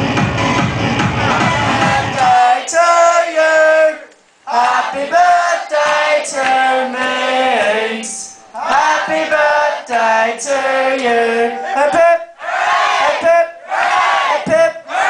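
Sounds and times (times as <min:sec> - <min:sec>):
dance music over sound system: 0:00.0 - 0:02.6
sung vocals: 0:01.1 - 0:12.4, 0:14.2 - 0:14.9.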